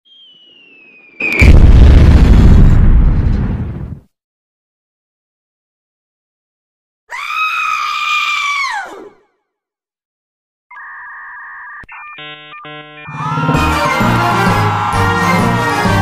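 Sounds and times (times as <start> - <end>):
cartoon scream: 7.1 - 9.2, 13.1 - 15.3
short electronic beeps: 10.8 - 13.1
electronic buzzing tone: 10.8 - 13.2.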